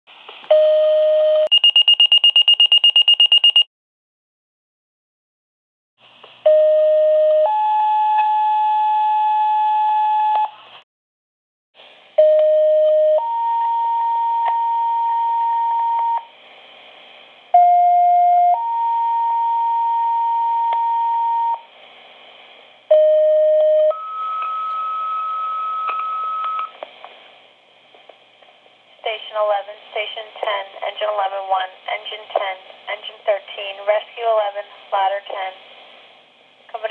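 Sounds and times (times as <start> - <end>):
two-tone paging tones: 0.5 - 3.7
radio hiss: 29.0 - 36.9.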